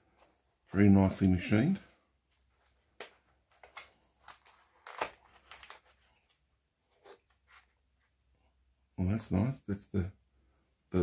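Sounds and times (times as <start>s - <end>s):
foam packaging creaking: 4.2s - 6.2s.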